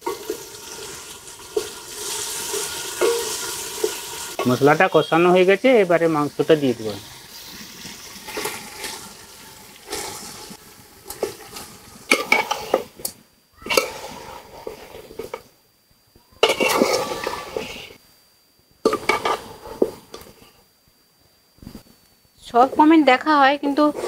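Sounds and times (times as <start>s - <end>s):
metal spatula scraping a pot: 0.0s - 4.6s, 9.8s - 13.0s, 13.6s - 15.5s, 16.4s - 17.9s, 18.9s - 20.3s, 23.7s - 24.0s.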